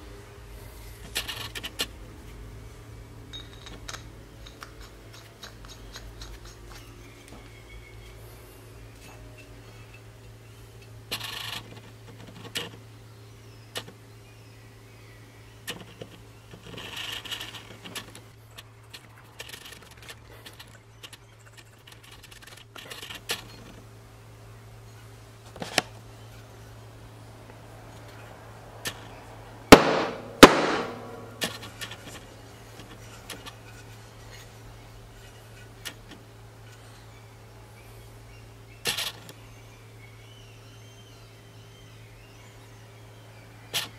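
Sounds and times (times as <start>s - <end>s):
faint steady hum: 0.0s - 43.9s
mallet parts clicking and scraping: 3.4s - 7.2s
sharp knocks: 29.7s - 31.5s.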